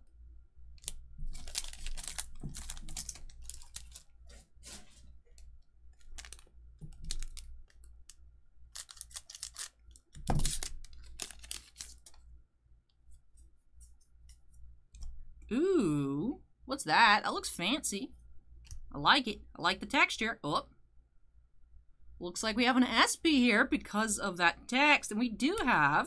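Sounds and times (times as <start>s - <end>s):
cards clicking and slapping: 8.8s - 12.2s.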